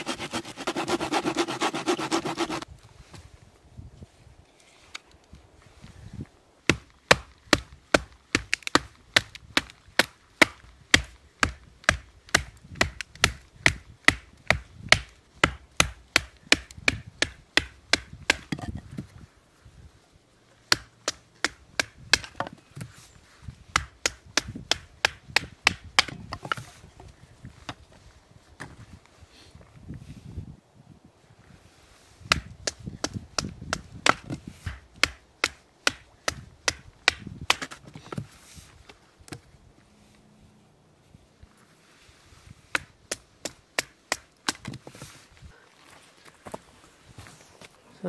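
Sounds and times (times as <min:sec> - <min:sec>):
firewood being chopped: 0:06.6 - 0:19.0, 0:20.7 - 0:22.9, 0:23.7 - 0:26.8, 0:32.3 - 0:38.3, 0:42.7 - 0:45.0.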